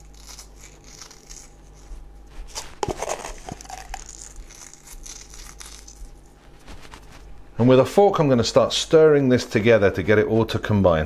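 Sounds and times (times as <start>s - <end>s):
salt rustling between fingers: 0.0s - 7.6s.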